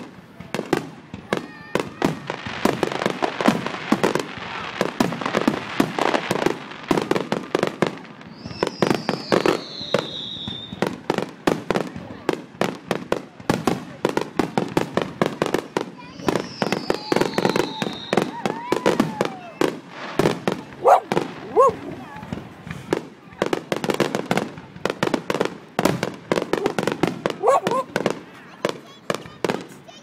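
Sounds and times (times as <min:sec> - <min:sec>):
fireworks bangs and crackles: 0:00.0 - 0:30.0
descending firework whistle: 0:08.2 - 0:10.9, 0:16.1 - 0:19.6.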